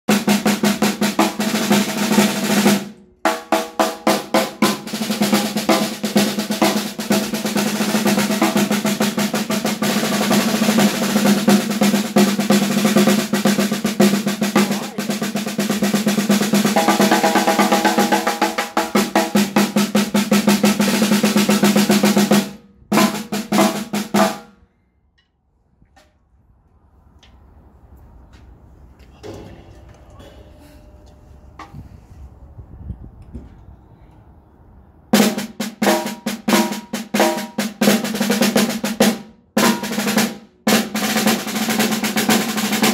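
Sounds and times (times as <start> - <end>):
snare drum rolls: 0.1 - 24.5, 35.2 - 42.9.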